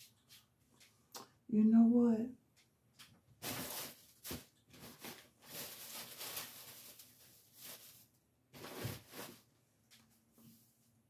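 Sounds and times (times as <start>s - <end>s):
rustling of paper and plastic: 3.0s - 10.0s.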